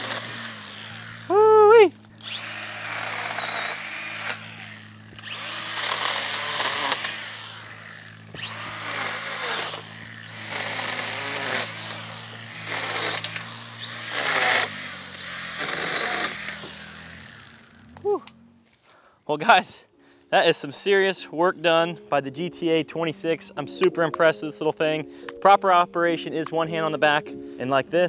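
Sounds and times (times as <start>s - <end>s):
chain cutting hedge branches: 0.0s - 18.1s
electric chainsaw motor whine: 0.0s - 18.4s.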